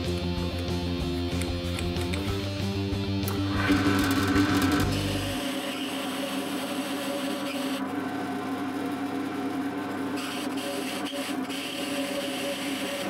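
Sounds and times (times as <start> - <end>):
drill press motor hum: 3.2 - 13.0.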